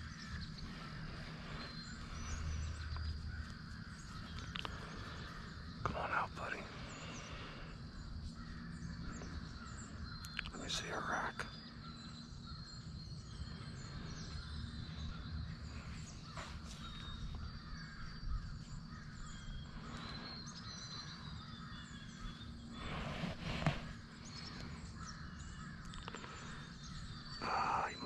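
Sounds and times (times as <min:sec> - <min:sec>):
bird calls: 0:00.0 - 0:28.0.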